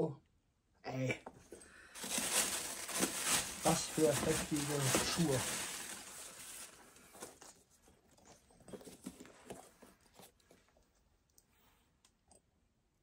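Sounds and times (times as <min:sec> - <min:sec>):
soft handling taps and rustles: 0:04.0 - 0:11.4.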